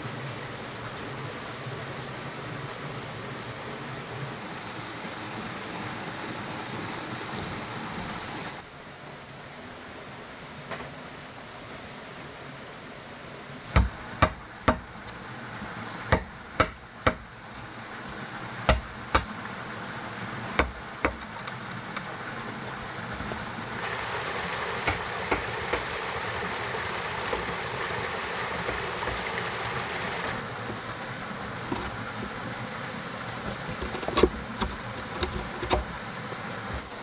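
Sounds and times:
steady hiss: 0:00.0 - 0:37.0
blade chopping bamboo: 0:16.1 - 0:17.2, 0:18.7 - 0:19.4, 0:20.6 - 0:21.5.

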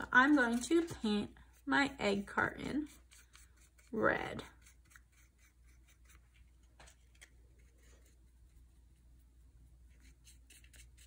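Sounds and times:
paintbrush strokes on paper pulp: 0:00.0 - 0:06.7
paintbrush strokes on plastic: 0:00.0 - 0:11.0.

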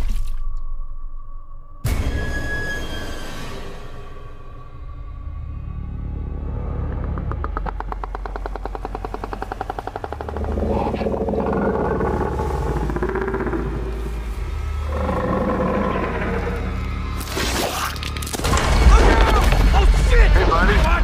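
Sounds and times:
low wavering creaking tones: 0:05.5 - 0:17.3
fast clicking rattle: 0:07.0 - 0:11.0.

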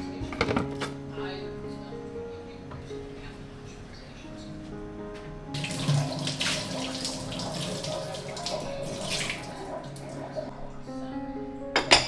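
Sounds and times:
faucet water running into sink: 0:05.6 - 0:10.5.

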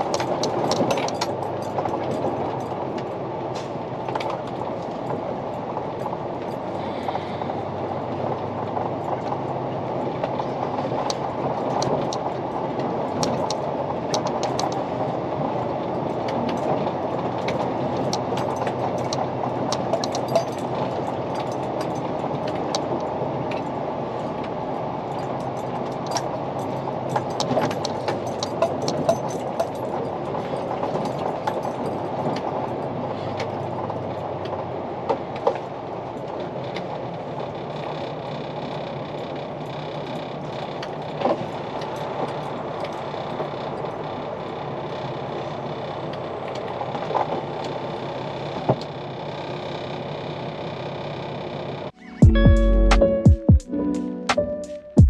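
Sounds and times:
clicks and rattles: 0:00.0 - 0:05.2, 0:16.2 - 0:23.7, 0:25.2 - 0:32.8
truck engine and road noise: 0:00.0 - 0:55.0.

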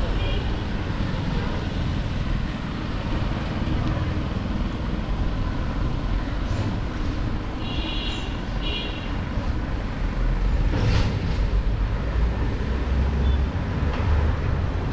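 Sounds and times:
street traffic: 0:00.0 - 0:14.9
vehicle horn beeps: 0:07.6 - 0:09.1.

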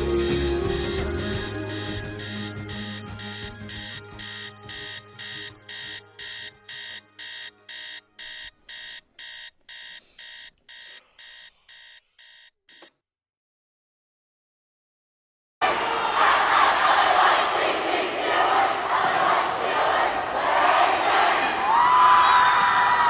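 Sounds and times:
music: 0:00.0 - 0:08.4
electronic alarm beeping: 0:00.0 - 0:12.9.

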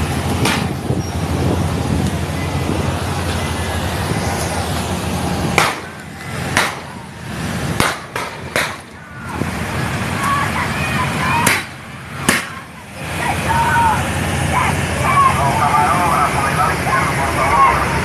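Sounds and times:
vehicles rumbling: 0:00.0 - 0:18.0
sharp bangs: 0:05.5 - 0:07.0, 0:07.7 - 0:09.0, 0:11.4 - 0:12.6.

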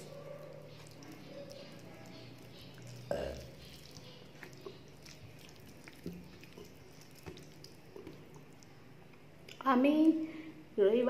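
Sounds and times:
wet chewing clicks: 0:00.0 - 0:09.6.

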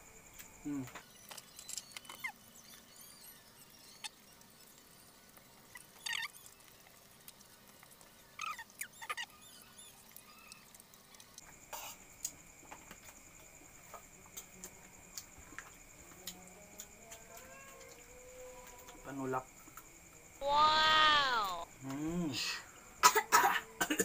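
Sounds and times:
high squeaky chirps: 0:01.1 - 0:04.3, 0:05.7 - 0:06.6, 0:08.4 - 0:10.7, 0:20.4 - 0:21.6
eating crunches and clicks: 0:04.0 - 0:11.4.

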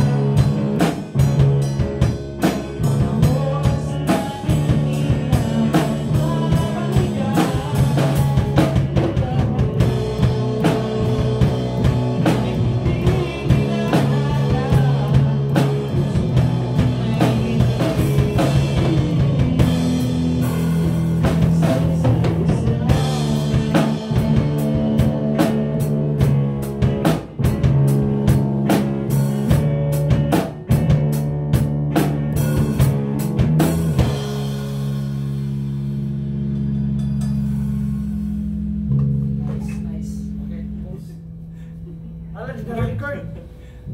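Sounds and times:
live rock band playing: 0:00.0 - 0:43.9
man singing into a microphone: 0:02.8 - 0:26.3.

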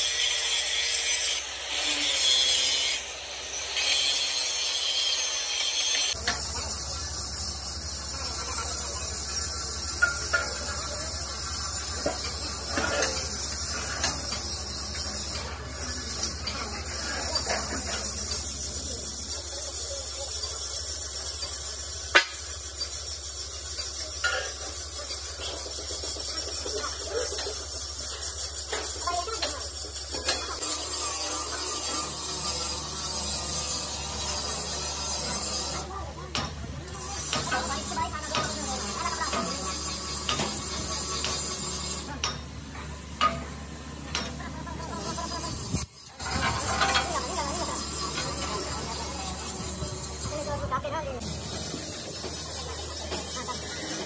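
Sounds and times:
cutting torch hissing and crackling: 0:00.0 - 0:36.0
angle grinder grinding steel: 0:00.0 - 0:54.0.

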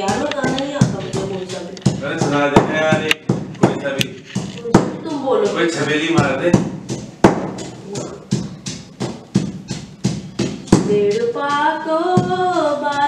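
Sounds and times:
woman singing: 0:00.0 - 0:02.0, 0:04.6 - 0:05.7, 0:10.7 - 0:13.0
pestle pounding in stone mortar: 0:00.0 - 0:11.3.

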